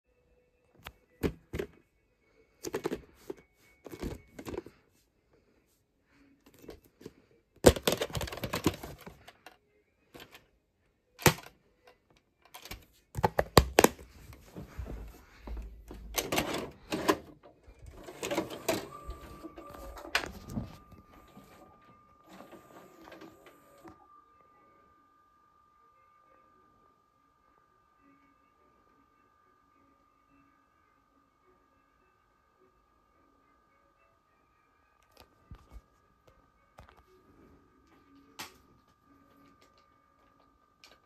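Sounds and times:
plastic video case clicking and clattering: 0:07.6 - 0:09.3
steady high whine: 0:17.7 - 0:41.0.

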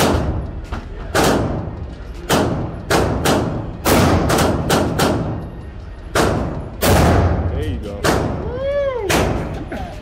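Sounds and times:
pistol shots echoing: 0:01.1 - 0:01.7, 0:02.3 - 0:05.4, 0:06.1 - 0:07.4, 0:08.0 - 0:08.4.

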